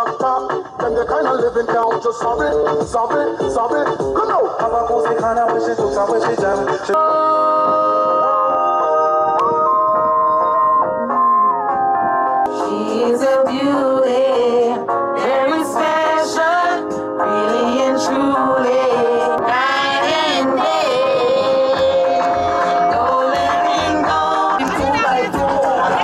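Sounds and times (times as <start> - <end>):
person singing: 0.0 - 11.5, 12.5 - 26.0
low bass beat: 17.6 - 26.0.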